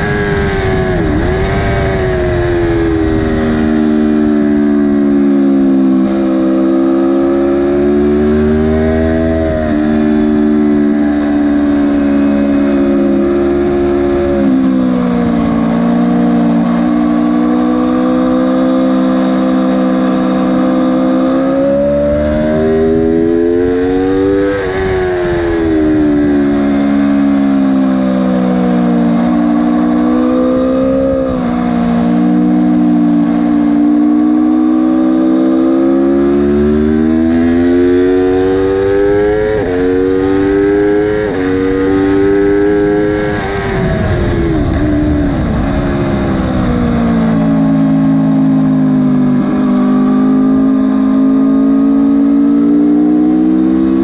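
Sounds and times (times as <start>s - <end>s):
wind rush: 0.0s - 5.8s, 38.2s - 48.6s
motorcycle engine revving through gears: 0.0s - 54.0s.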